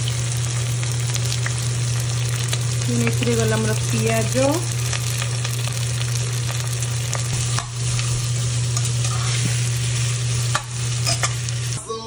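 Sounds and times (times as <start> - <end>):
onions sizzling in hot oil: 0.0 - 11.8
steady low hum: 0.0 - 12.0
metal spoon scraping a pot: 7.9 - 11.4.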